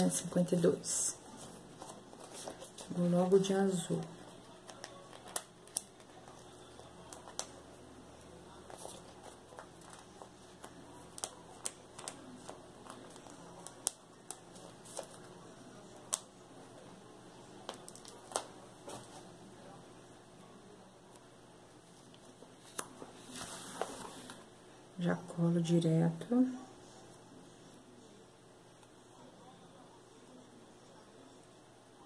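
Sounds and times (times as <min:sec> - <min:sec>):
paper rustling: 0:01.3 - 0:03.0, 0:04.6 - 0:07.6, 0:08.6 - 0:15.3, 0:22.0 - 0:24.4.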